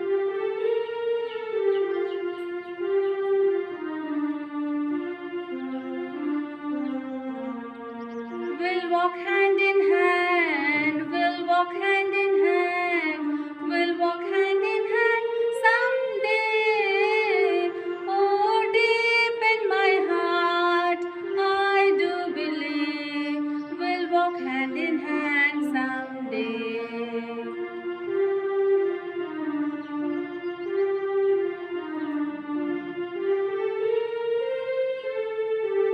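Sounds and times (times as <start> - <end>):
sustained instrumental accompaniment: 0.0 - 35.9
woman singing slowly: 8.6 - 27.5.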